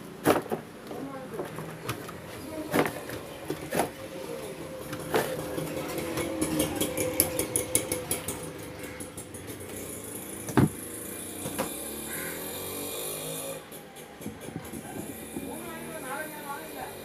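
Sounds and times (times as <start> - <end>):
sharp knocks: 10.5 - 10.8.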